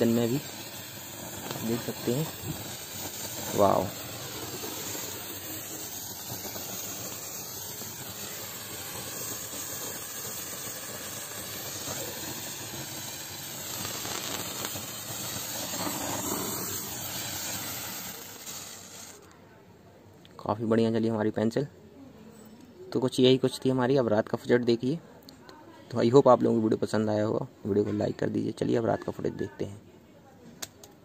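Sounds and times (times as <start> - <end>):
firework sparkler fizzing hiss: 0.0 - 19.3.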